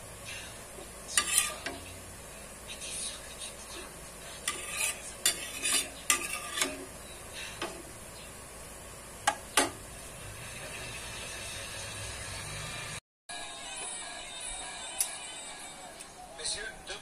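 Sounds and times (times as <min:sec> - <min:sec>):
metal utensil scraping pan: 0:01.1 - 0:02.0, 0:04.2 - 0:07.8.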